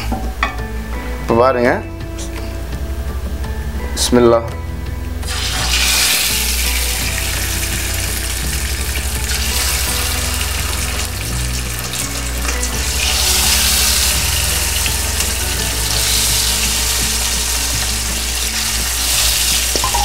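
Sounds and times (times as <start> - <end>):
chicken sizzling in hot oil: 5.2 - 20.0.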